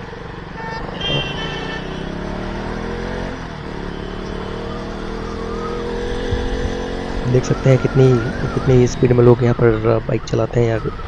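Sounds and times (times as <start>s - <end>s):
motorcycle engine accelerating: 1.0s - 9.6s
wind rumbling on microphone: 6.1s - 11.0s.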